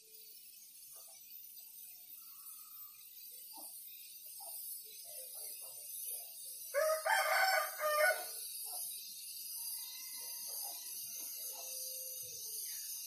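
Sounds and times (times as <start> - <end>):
rooster crowing: 6.8 - 8.4.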